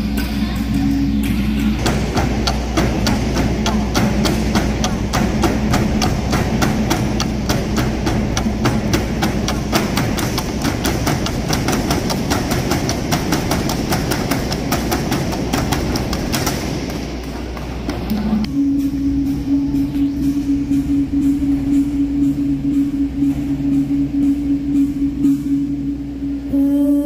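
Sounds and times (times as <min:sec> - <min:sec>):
low hum: 0:00.0 - 0:27.0
bamboo poles clacking: 0:01.6 - 0:18.3.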